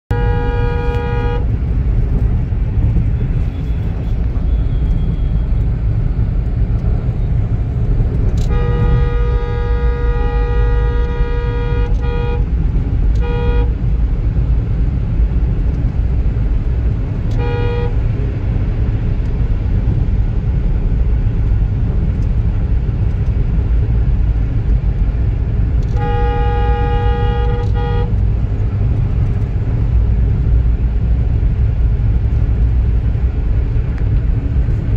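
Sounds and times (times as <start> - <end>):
vehicle horn: 0.1 - 1.6, 8.3 - 13.9, 17.2 - 18.2, 25.8 - 28.3
car cabin road rumble: 0.1 - 34.9.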